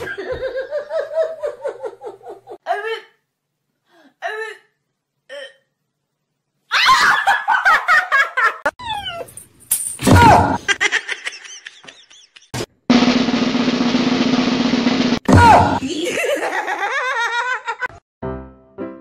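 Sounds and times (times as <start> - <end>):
person laughing: 10.6 - 12.6, 15.7 - 18.0.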